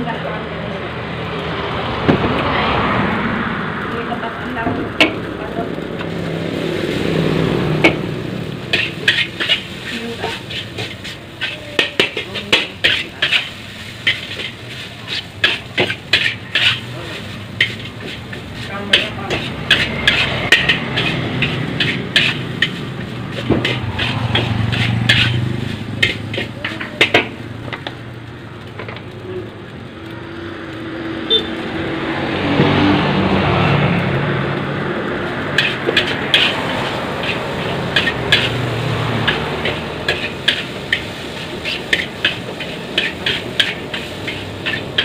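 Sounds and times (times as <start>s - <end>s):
metal spatula clanking on wok: 8.7s - 27.9s, 35.6s - 45.0s.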